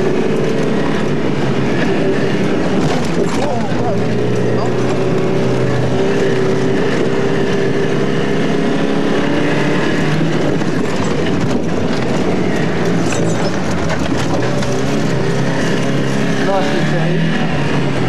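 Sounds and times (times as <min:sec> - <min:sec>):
car engine running hard: 0:00.0 - 0:18.0
body and suspension knocking: 0:10.2 - 0:15.4.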